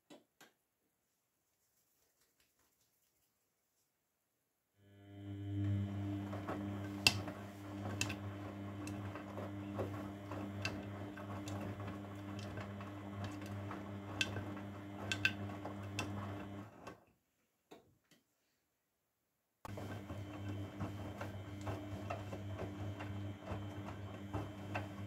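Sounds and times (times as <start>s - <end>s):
washing machine drum humming: 5.6s - 17.0s, 19.7s - 25.0s.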